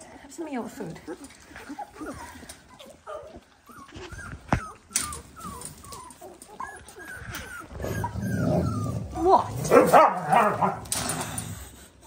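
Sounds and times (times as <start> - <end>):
puppies whimpering: 0.8 - 9.5.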